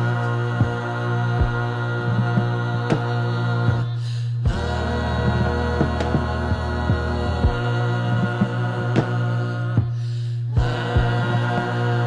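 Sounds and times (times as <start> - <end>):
chant-like tones: 0.0 - 12.0
low thumps: 0.0 - 12.0.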